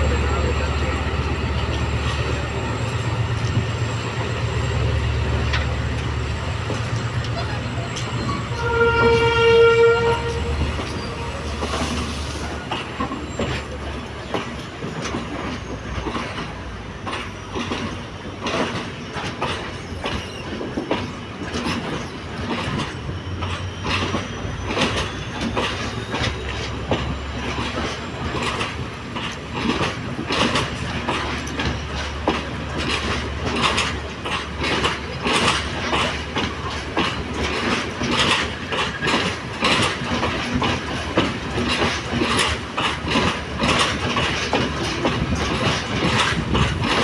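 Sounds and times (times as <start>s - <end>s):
train rumbling past: 0.0s - 47.0s
train wheels clacking on rail joints: 0.0s - 47.0s
train horn blast: 8.4s - 11.8s.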